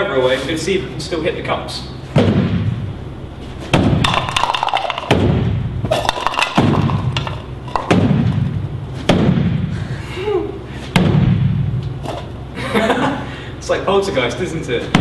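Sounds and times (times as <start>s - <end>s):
plastic cups clattering: 4.0s - 5.1s, 5.9s - 7.9s.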